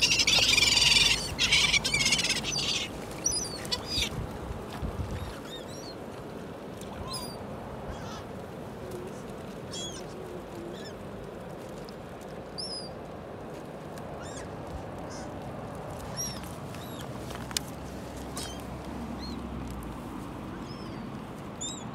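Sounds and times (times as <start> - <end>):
waterbirds calling: 0.0 - 8.4, 9.0 - 11.2, 12.4 - 13.0, 14.2 - 15.4, 16.0 - 19.6, 20.5 - 21.9.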